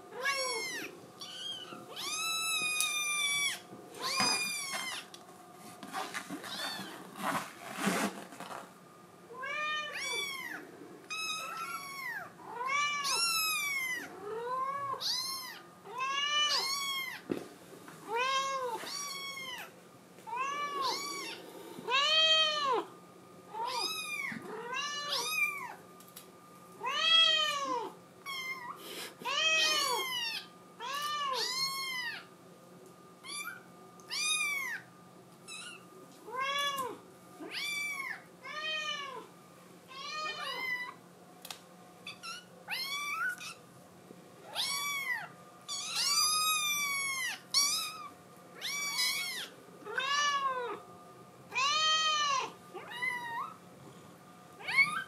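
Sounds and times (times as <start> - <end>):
kitten meowing: 0.2 - 5.1, 9.4 - 17.2, 44.5 - 50.8.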